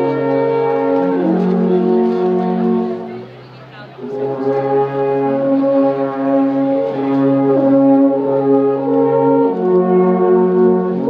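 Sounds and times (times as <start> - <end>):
alphorns playing in harmony: 0.0 - 11.0.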